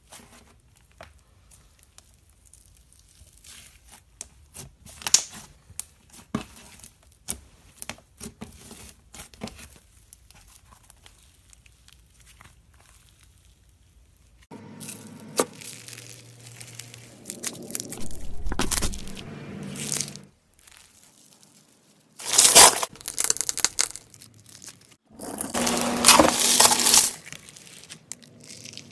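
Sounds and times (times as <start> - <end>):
slime crackling and popping: 22.2 - 25.0.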